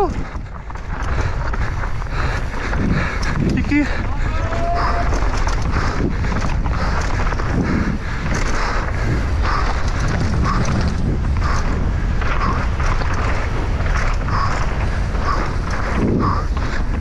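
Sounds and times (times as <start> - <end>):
bike frame rattling and knocking: 0.0 - 17.0
bike tyres rumbling: 0.0 - 17.0
wind buffeting microphone: 0.0 - 17.0.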